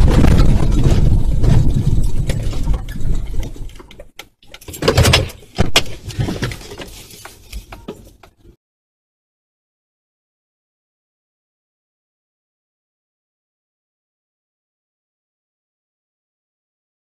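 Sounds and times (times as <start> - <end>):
car driving over rough ground: 0.0 - 8.0.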